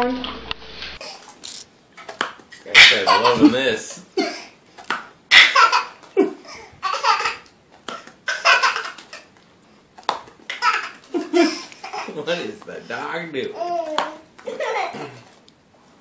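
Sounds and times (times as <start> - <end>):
baby laughing: 2.6 - 4.6, 5.3 - 9.3, 10.5 - 12.4, 13.5 - 15.3.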